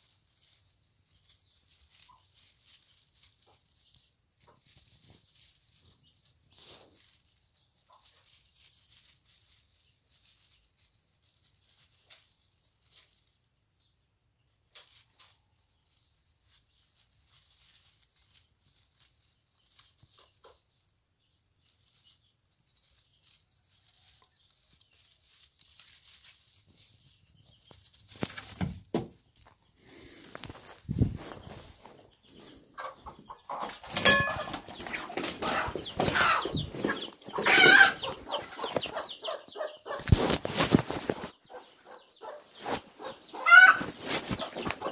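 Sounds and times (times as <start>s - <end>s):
rustling of grass: 0.0s - 44.9s
rustle and knock: 22.8s - 29.6s, 33.7s - 39.0s.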